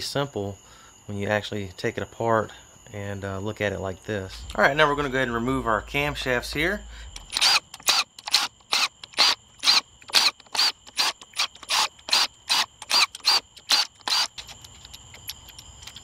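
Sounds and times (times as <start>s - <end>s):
impact wrench bursts: 6.0s - 14.5s.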